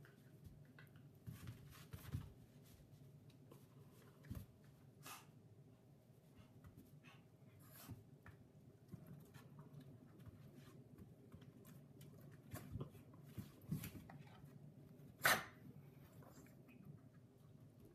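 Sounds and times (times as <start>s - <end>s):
dogs scuffling and snuffling: 0.0s - 5.3s.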